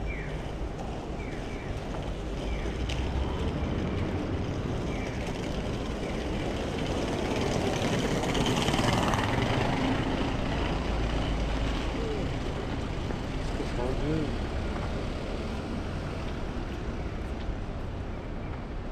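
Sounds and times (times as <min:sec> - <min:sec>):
street traffic rumble: 0:00.0 - 0:18.9.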